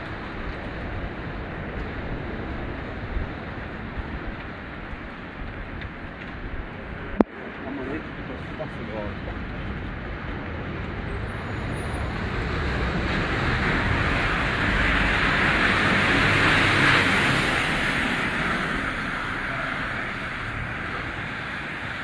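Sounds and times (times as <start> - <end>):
bus driving past: 10.6 - 22.0
tyres hissing on wet road: 11.0 - 22.0.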